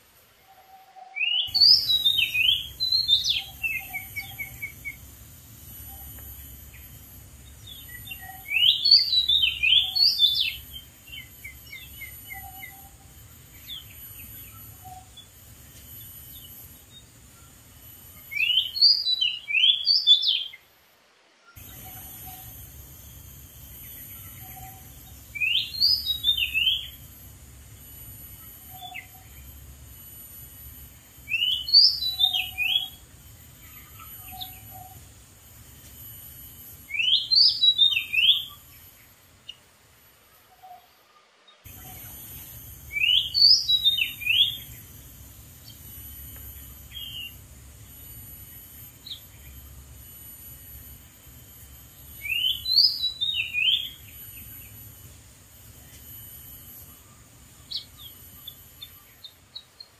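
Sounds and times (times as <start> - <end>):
bird whistling song: 0.5 - 5.1, 5.7 - 15.4, 18.2 - 20.6, 21.5 - 22.6, 23.8 - 27.1, 28.4 - 29.5, 31.2 - 33.0, 33.6 - 35.1, 36.8 - 38.8, 41.7 - 44.9, 46.5 - 47.4, 52.0 - 54.8.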